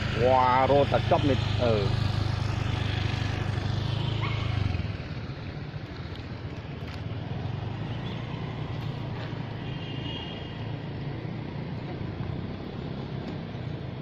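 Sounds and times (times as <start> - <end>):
vehicle engine passing: 0.0 - 6.2
outdoor background noise: 0.0 - 14.0.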